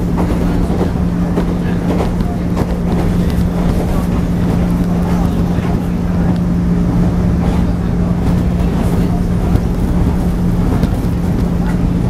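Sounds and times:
traction motors humming: 0.0s - 12.0s
train wheels rumbling on rail: 0.0s - 12.0s.

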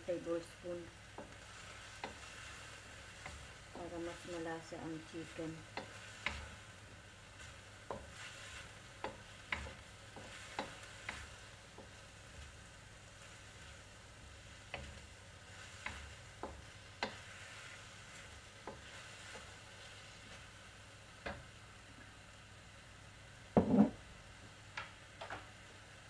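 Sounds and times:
meat sizzling in a wok: 0.0s - 26.0s.

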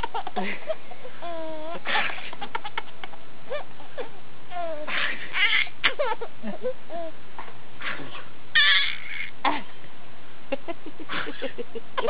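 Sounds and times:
baby giggling and squealing: 0.0s - 2.8s, 3.5s - 7.2s, 8.6s - 9.6s.

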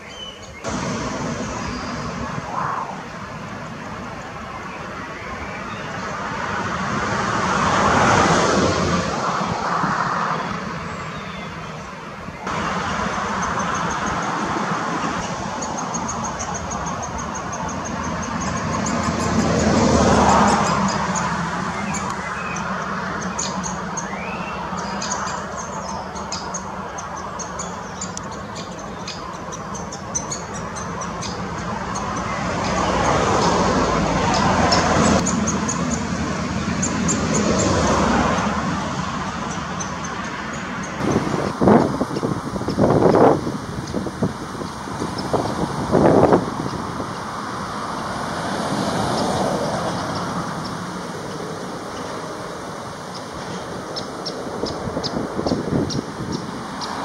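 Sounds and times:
road traffic passing: 0.0s - 57.0s
woodpecker nestlings chattering: 15.1s - 36.1s.

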